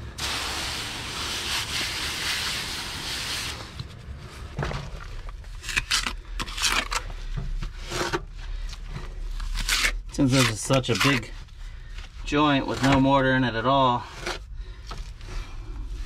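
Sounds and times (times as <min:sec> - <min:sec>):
water spray hissing: 0:00.2 - 0:03.6
brush scrubbing mortar joint: 0:10.1 - 0:11.4.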